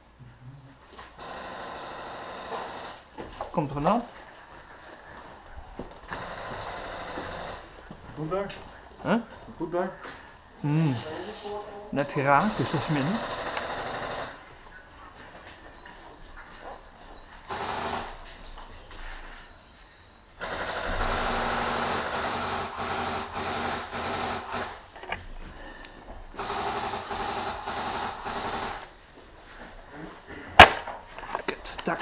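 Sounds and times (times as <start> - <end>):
airsoft guns full-auto bursts: 1.2 - 3.1, 6.1 - 7.8, 12.2 - 14.5, 17.4 - 18.3, 20.4 - 24.9, 26.3 - 29.0.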